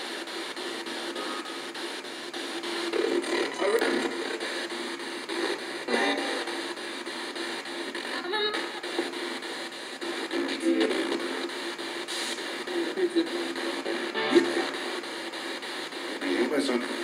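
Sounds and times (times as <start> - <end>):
fragments of broadcast sound: 0.0 - 17.0
radio static chopped into steps: 0.0 - 17.0.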